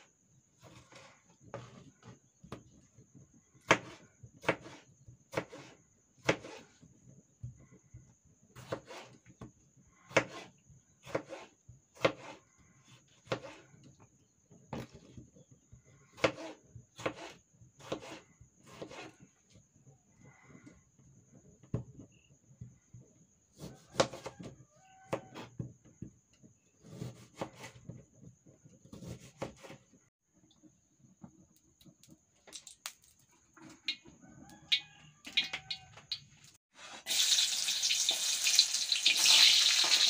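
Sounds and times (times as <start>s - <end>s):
knife chopping on plastic board: 3.6s - 6.6s, 10.1s - 12.4s, 16.2s - 19.1s, 23.6s - 24.4s, 28.9s - 29.8s.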